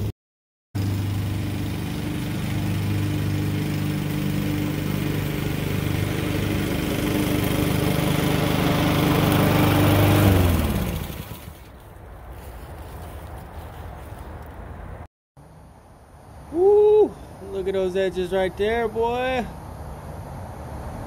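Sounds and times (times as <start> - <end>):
lawn mower engine running: 0.8 - 11.8.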